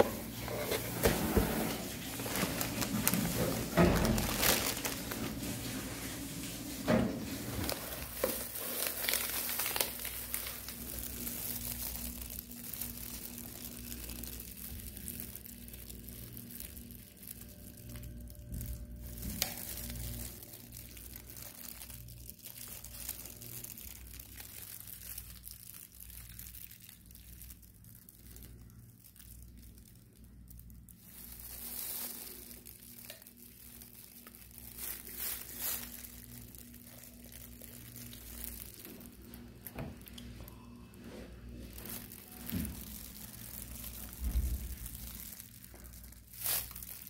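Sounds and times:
rustling and crinkling: 0.0 - 47.0
steady low hum: 27.6 - 47.0.

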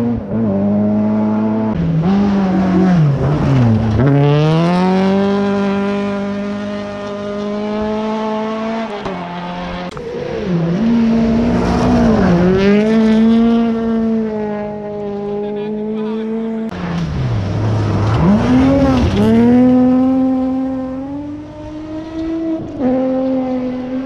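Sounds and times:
rally car engine at high revs: 0.0 - 24.0.

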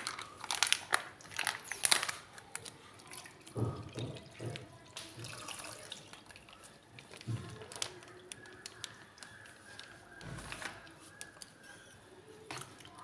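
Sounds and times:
plastic packet crinkling: 0.0 - 3.7, 4.5 - 11.8
milk glugging and splashing: 1.1 - 9.6.

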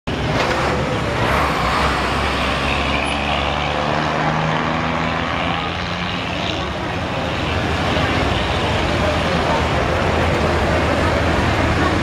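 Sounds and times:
bus engine pulling up: 0.1 - 4.4
street traffic: 0.1 - 12.0.

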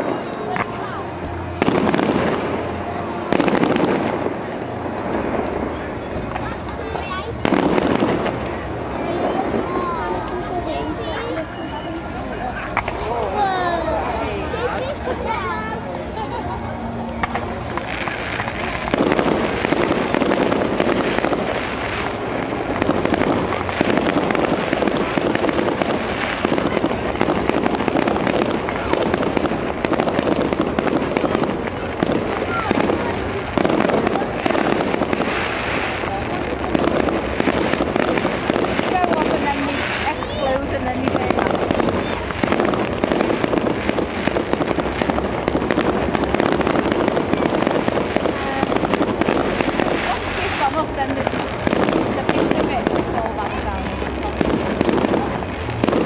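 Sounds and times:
fireworks crackling and banging: 0.0 - 56.0.

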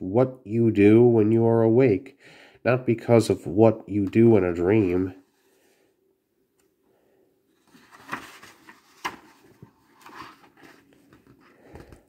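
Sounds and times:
book page turning: 7.5 - 12.0.

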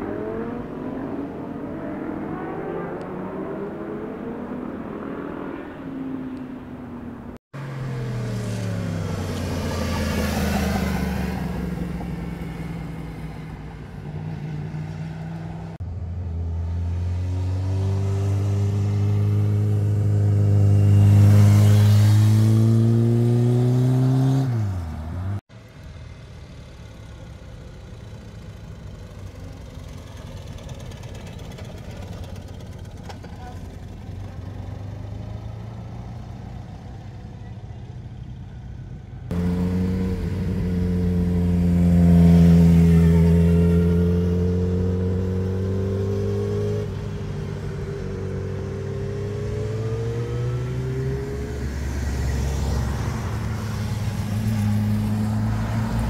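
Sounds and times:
motorcycle passing by: 7.6 - 25.4, 39.3 - 56.0
motorcycle with sidecar approaching: 7.6 - 56.0
motorcycle engine revving: 14.4 - 25.4, 39.3 - 56.0.

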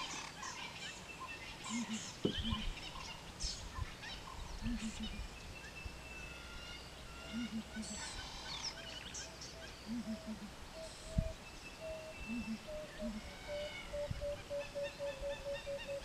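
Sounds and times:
bird chirping: 0.0 - 16.0
dove-like cooing: 1.6 - 2.8, 4.5 - 5.3, 7.1 - 16.0
deep bird hoot: 7.2 - 8.2, 9.9 - 16.0.

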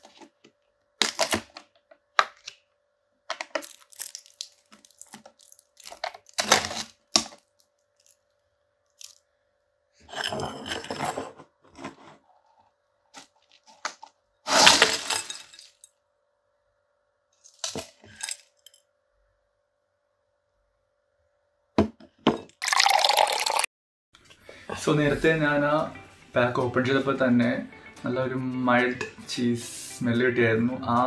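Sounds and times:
crisps rattling into a bowl: 3.3 - 8.2, 14.5 - 15.9.

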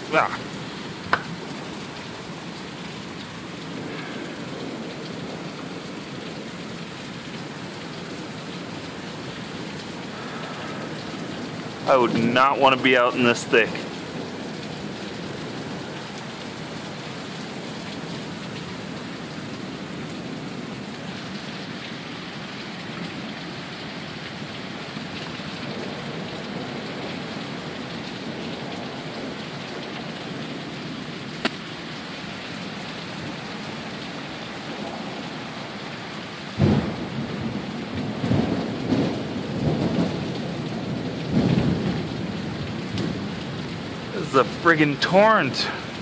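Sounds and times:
heavy rain pouring: 0.0 - 46.0
thunder clap rumbling: 36.6 - 44.6.

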